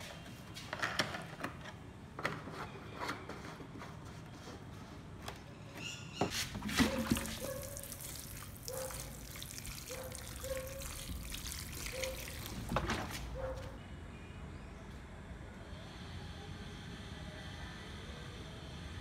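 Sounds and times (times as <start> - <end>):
water trickling from bottle: 6.7 - 13.3.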